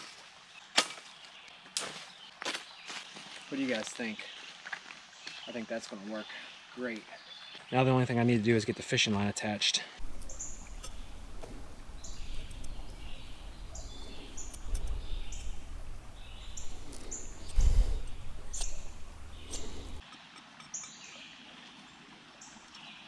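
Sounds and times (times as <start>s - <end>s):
knife cutting wooden stick: 10.0s - 20.0s
bird chirping: 10.0s - 21.2s.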